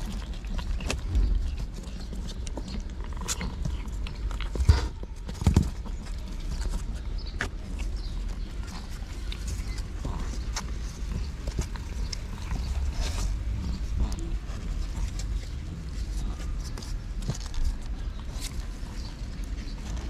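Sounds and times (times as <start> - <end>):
cat tongue and paws scuffing cardboard: 0.0 - 20.0.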